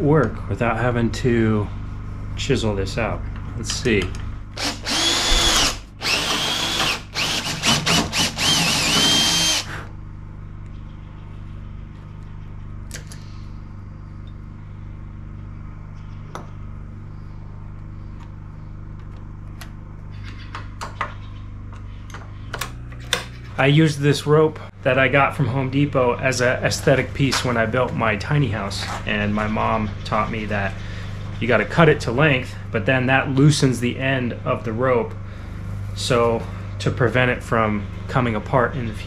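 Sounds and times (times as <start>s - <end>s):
steady low hum: 0.0s - 39.0s
cordless drill whining into wood: 4.6s - 9.9s.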